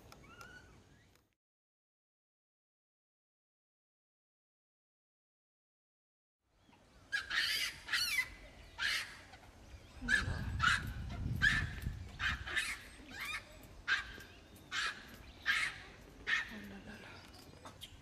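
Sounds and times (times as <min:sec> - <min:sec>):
macaques calling: 0:07.1 - 0:17.0.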